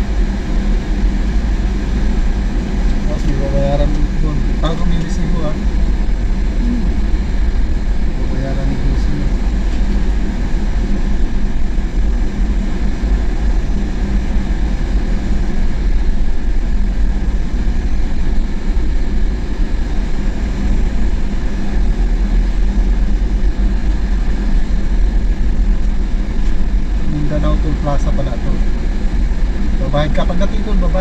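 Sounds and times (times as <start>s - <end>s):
faint steady hum: 0.0s - 31.0s
vehicle engine rumble: 0.0s - 31.0s.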